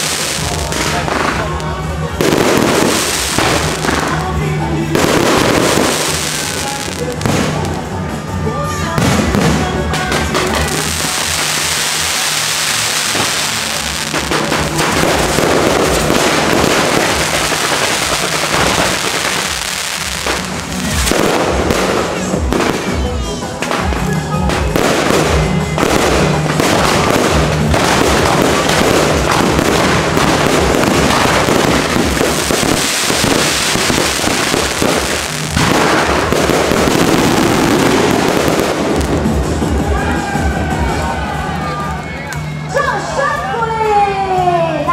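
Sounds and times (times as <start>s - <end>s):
fireworks bangs and crackling: 0.0s - 42.8s.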